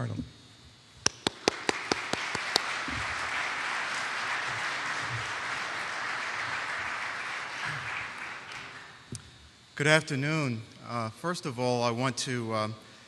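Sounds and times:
sharp clap close to microphone: 1.0 - 9.2
audience applauding: 1.1 - 9.1.

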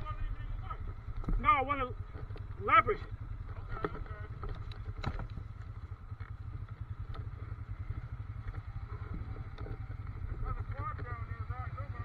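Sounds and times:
atv engine idling: 0.0 - 12.0
faint clicks and rattles: 3.3 - 11.3.

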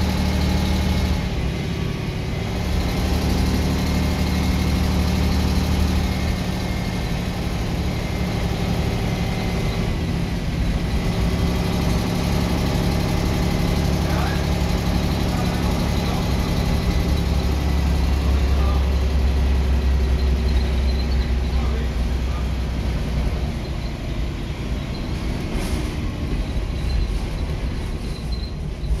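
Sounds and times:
bus diesel engine idling: 0.0 - 29.0.

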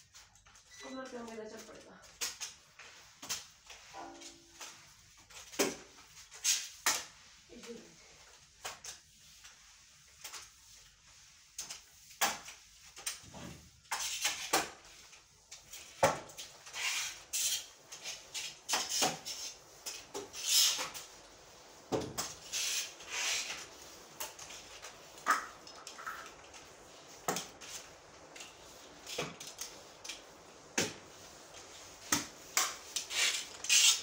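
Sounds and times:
mop swishing on wet cement floor: 0.0 - 34.0.

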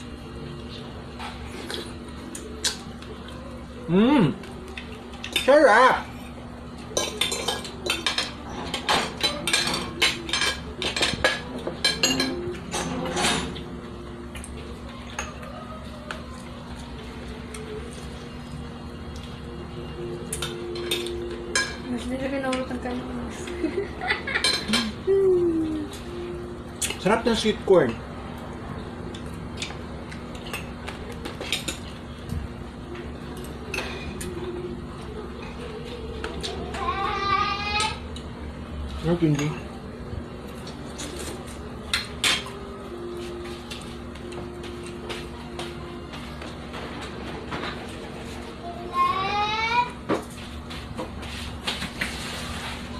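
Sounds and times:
cutlery clinking on plates: 6.9 - 13.6.

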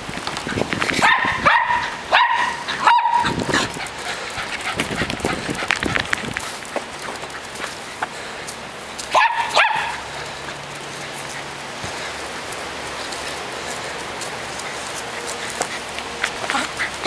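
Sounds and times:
small dog barking: 1.0 - 3.7, 9.1 - 10.1.

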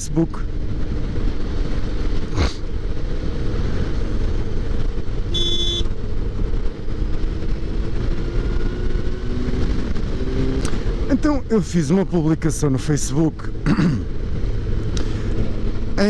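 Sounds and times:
wind rush on microphone: 0.0 - 12.1, 12.9 - 16.0
motorcycle engine drone: 0.0 - 16.0
high ringing tone: 5.3 - 5.9.

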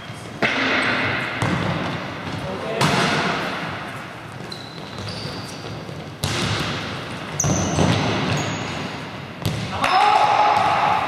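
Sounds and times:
ball kicked with echoing thud: 0.4 - 1.9, 6.2 - 6.8, 9.4 - 9.7
shoe squeaks on court: 4.3 - 6.1, 7.3 - 8.9.

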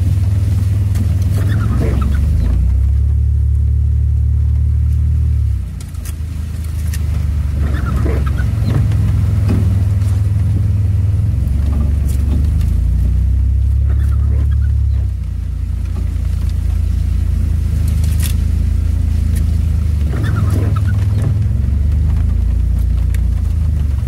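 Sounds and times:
vehicle engine droning: 0.0 - 24.0
knocks and rattles from bumps: 6.8 - 16.8, 20.0 - 24.0.

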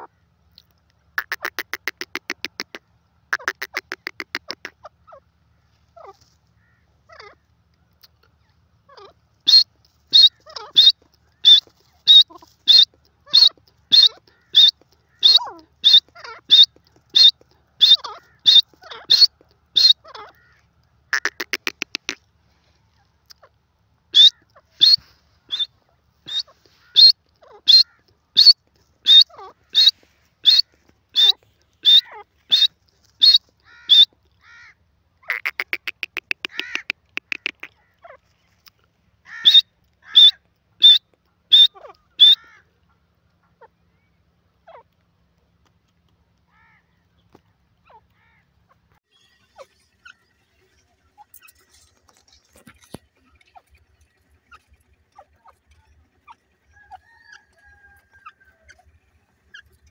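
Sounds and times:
bird calling high sharp notes: 1.2 - 2.8, 3.4 - 4.7, 9.5 - 20.0, 21.2 - 22.2, 24.2 - 25.7, 26.3 - 34.1, 35.3 - 37.7, 39.4 - 42.4
bird buzzing rattle: 21.1 - 22.2.

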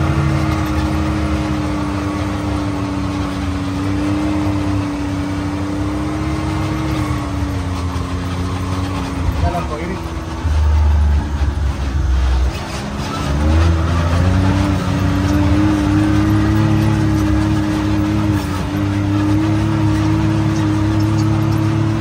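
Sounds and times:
engine running under load: 0.0 - 22.0
heavy deep rumble: 6.8 - 20.9.

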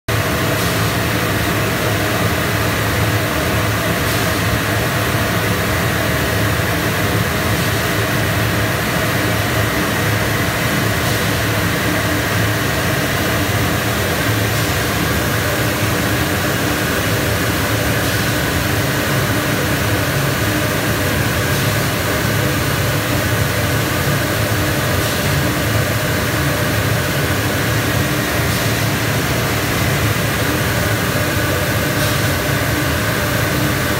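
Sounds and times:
loud rush of air: 9.5 - 33.9.

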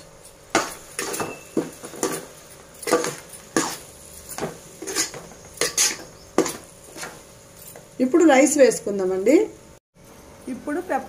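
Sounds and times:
spatula scraping metal pot: 0.9 - 7.2.

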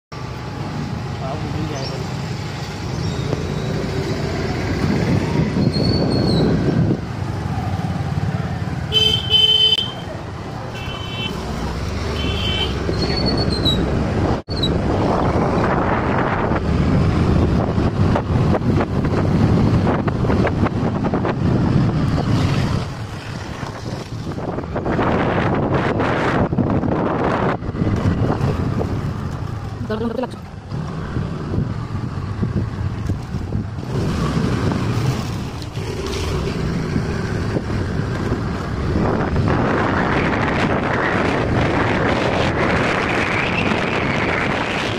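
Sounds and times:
motorbike engine and road noise: 0.1 - 44.9
wind buffeting microphone: 2.8 - 8.9, 11.4 - 44.9
horn toot: 8.9 - 10.0.

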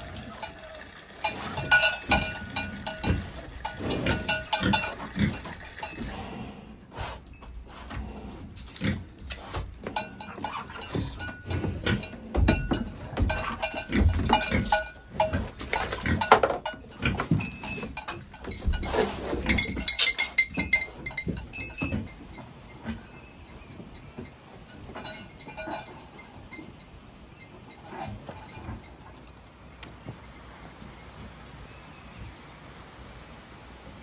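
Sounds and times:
metal bucket clinking and knocking: 0.3 - 6.1, 9.8 - 26.8.

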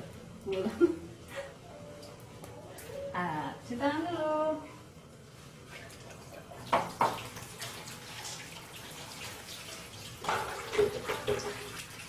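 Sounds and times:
water splashing and running: 5.7 - 12.0.

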